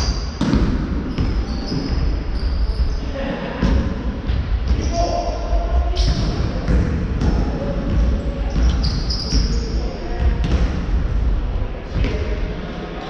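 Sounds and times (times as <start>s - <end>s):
basketball bouncing on wooden floor: 10.2s - 10.8s.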